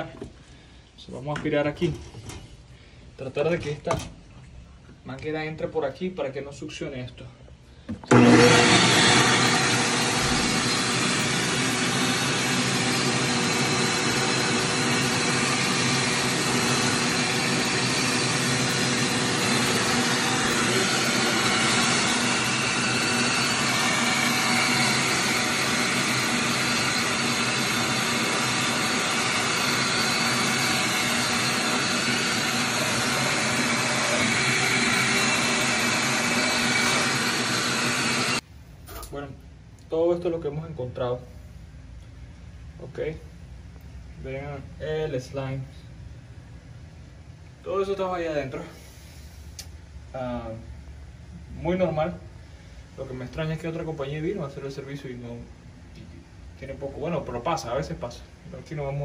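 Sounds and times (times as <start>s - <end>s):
shop vacuum sucking water: 8.0s - 38.4s.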